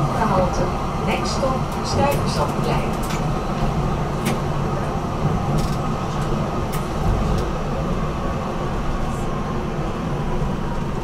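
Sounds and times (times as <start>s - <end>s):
tram wheels rumbling on rails: 0.0s - 11.0s.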